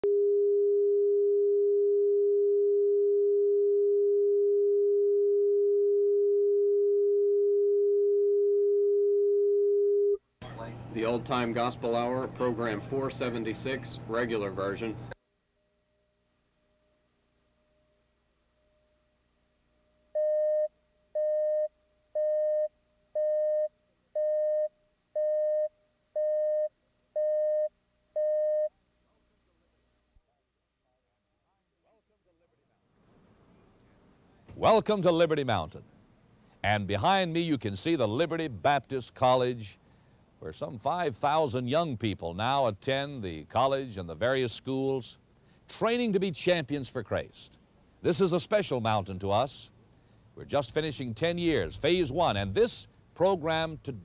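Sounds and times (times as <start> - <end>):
faint steady tone: 0.0 - 10.9, 14.8 - 34.4
steady test tone: 50.6 - 54.0.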